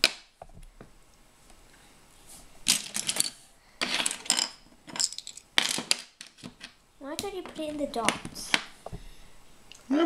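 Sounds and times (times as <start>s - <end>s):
plastic pieces clicking and clattering: 2.7s - 8.7s.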